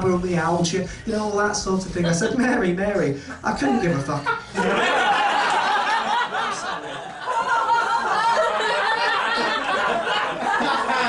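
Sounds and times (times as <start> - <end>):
audience laughing: 3.4 - 11.0.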